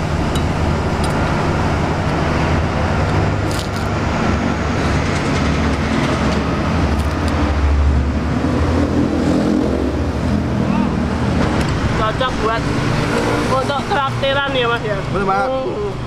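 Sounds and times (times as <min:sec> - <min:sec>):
road traffic rumble: 0:00.0 - 0:16.0.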